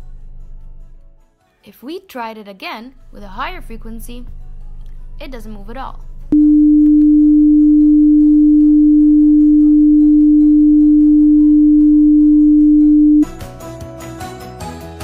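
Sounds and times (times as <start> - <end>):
loudspeaker test tone: 6.4 - 13.3.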